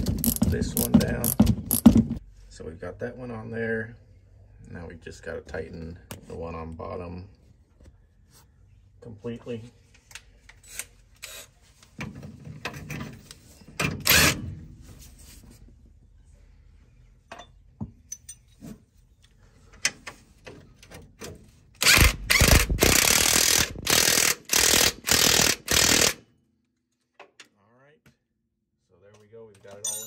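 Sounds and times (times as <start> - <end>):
ratchet wrench ratcheting: 0.0 - 2.0, 21.8 - 26.2
clicks and rattles: 0.0 - 2.2.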